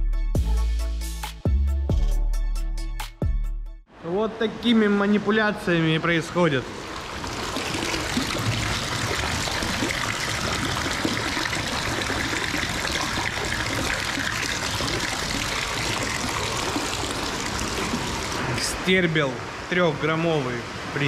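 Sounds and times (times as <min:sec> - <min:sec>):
water trickling and splashing: 0:05.7 - 0:21.0.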